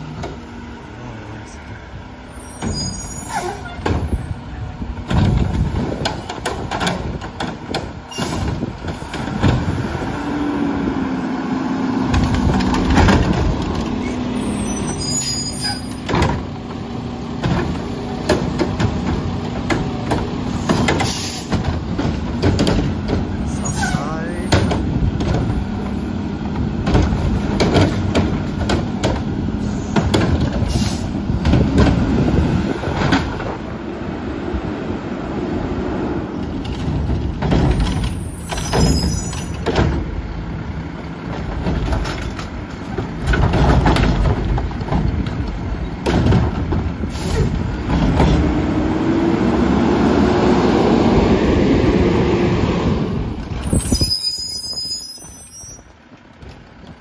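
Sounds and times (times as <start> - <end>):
diesel engine revving: 0.0 - 54.1
carts clanking and banging: 2.5 - 10.1, 11.9 - 33.9, 36.2 - 49.7.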